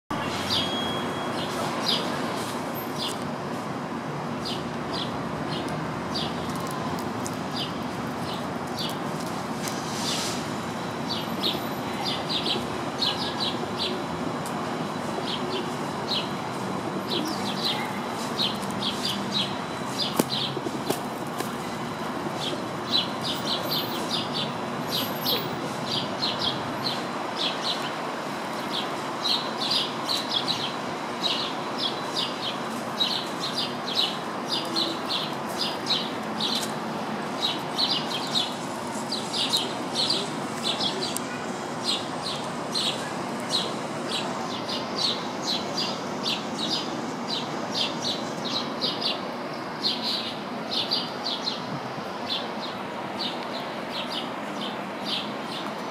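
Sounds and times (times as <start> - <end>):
steady background noise: 0.1 - 55.9
sparrows chirping: 0.2 - 3.2, 4.4 - 6.7, 7.5 - 9.1, 11.1 - 14.1, 14.9 - 55.8.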